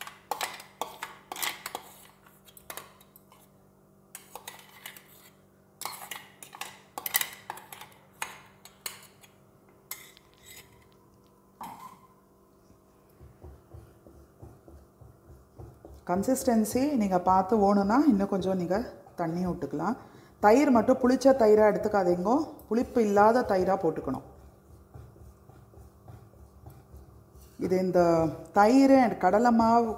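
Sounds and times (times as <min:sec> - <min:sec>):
spoon scraping metal jar: 0:00.0 - 0:03.5, 0:04.2 - 0:11.0, 0:11.6 - 0:12.1
wooden spoon stirring curry: 0:12.9 - 0:19.6, 0:23.1 - 0:27.8.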